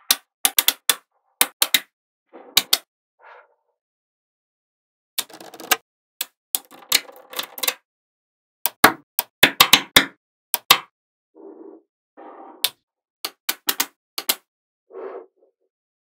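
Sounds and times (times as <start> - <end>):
magnetic balls clicking together: 0.0 - 1.9, 5.2 - 7.8, 8.7 - 10.9, 13.3 - 14.4
magnetic balls rattling: 5.2 - 5.8, 6.6 - 7.8.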